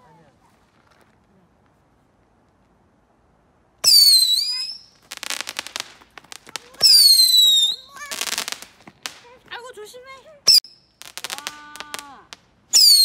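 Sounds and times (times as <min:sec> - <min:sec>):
firework shrill whistle: 0:03.8 - 0:05.5, 0:06.8 - 0:08.5, 0:12.7 - 0:13.0
firework crackling: 0:03.8 - 0:13.0.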